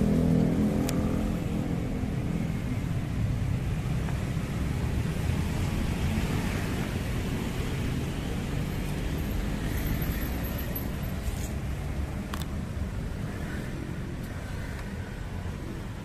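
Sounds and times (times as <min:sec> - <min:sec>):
passing road traffic: 0:00.0 - 0:16.0.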